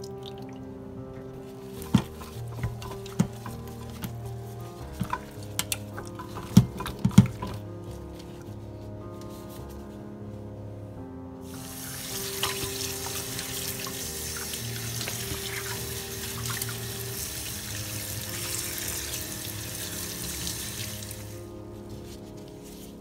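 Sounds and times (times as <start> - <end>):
hands rubbing wet meat: 1.4 - 10.0, 11.5 - 23.0
tap water splashing into dish: 5.0 - 7.6, 12.2 - 17.7.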